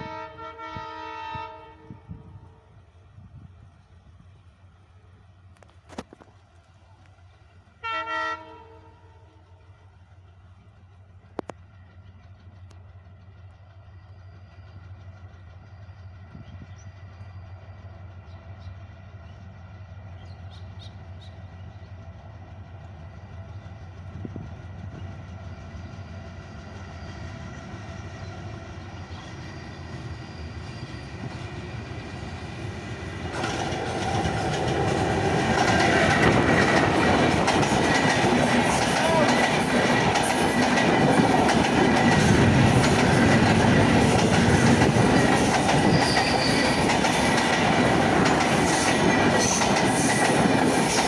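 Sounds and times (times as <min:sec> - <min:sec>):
diesel locomotive passing: 0:00.0 - 0:51.0
train wheels clattering over rail joints: 0:29.0 - 0:51.0.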